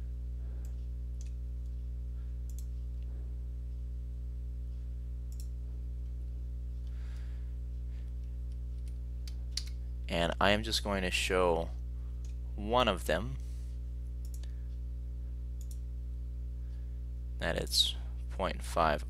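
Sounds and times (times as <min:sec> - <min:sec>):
low electrical hum: 0:00.0 - 0:19.0
computer mouse clicks: 0:02.5 - 0:02.7, 0:05.3 - 0:05.5, 0:08.1 - 0:09.8, 0:14.2 - 0:14.5, 0:15.6 - 0:15.8.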